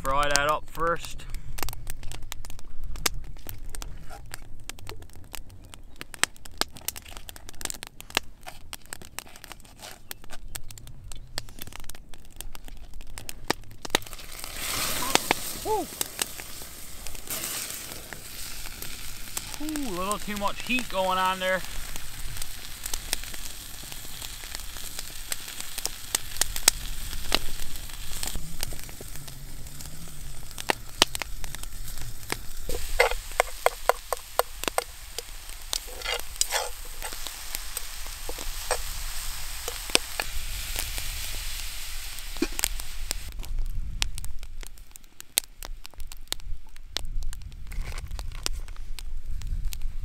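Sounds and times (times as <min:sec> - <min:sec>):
meat sizzling in a skillet: 0:13.9 - 0:43.3
utensil scraping a pan: 0:32.7 - 0:40.3.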